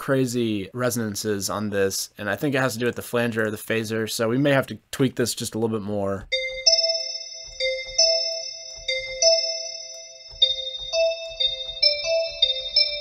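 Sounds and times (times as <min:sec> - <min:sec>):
synthesized bell notes: 0:06.3 - 0:13.0.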